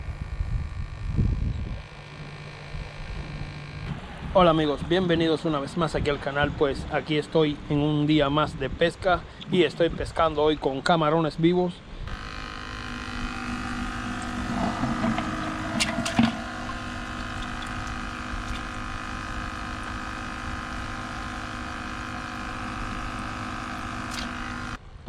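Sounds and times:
aerator pump humming: 0.0 - 7.9, 12.0 - 24.8
air hose bubbling in water: 12.8 - 24.5
water splash: 14.2 - 18.9
knocks on bucket: 14.6 - 16.5.

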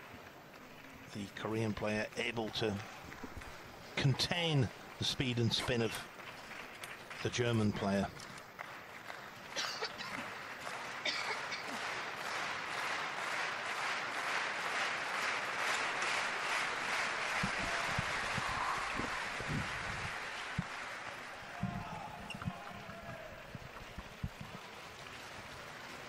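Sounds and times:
crowd applauding: 0.0 - 26.0.

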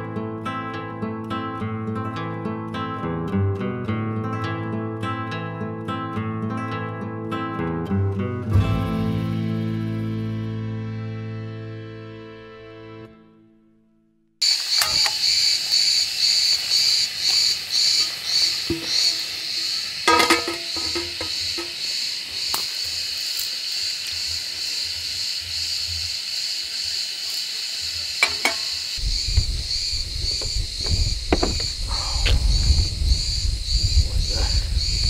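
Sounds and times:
insects chirping: 14.4 - 35.0
wind rumble on microphone: 29.0 - 35.0.

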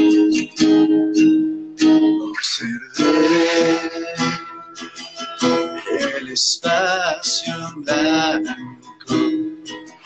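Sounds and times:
strummed acoustic guitar: 0.0 - 10.0
man singing: 1.8 - 4.6, 5.8 - 9.4.

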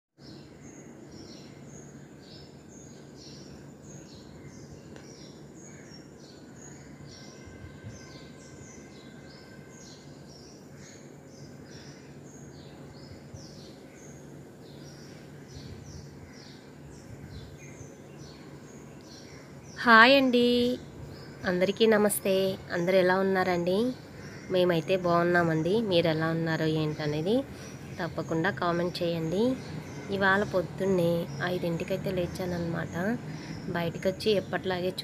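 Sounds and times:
small birds chirping: 0.2 - 35.0
steady low hum: 0.2 - 35.0.

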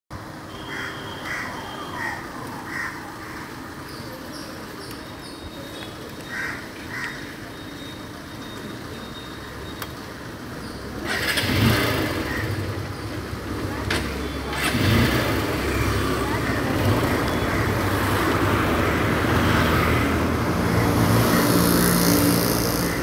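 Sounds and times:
street noise: 0.1 - 23.0
crows cawing: 0.6 - 3.6, 6.3 - 7.4
motorcycle engine starting: 10.8 - 18.9.

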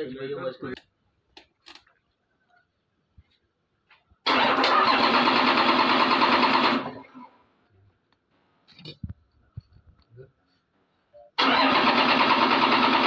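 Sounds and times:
diesel engine starting: 4.3 - 7.4, 11.4 - 13.0.

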